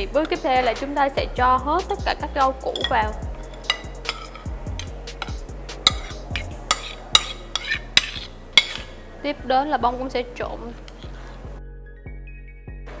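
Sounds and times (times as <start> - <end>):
background music with bass line: 0.0 - 13.0
metal spoon clinking on plate: 2.7 - 9.0.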